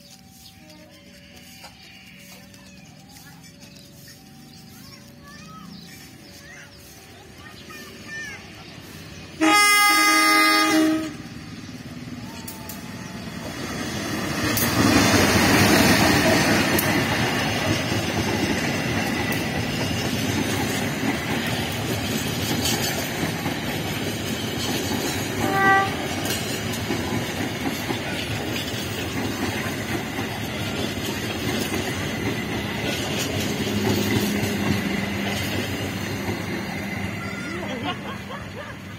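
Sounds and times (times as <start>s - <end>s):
train wheels rumbling on rails: 0.0s - 38.9s
train horn toot: 9.4s - 11.4s, 25.4s - 26.4s.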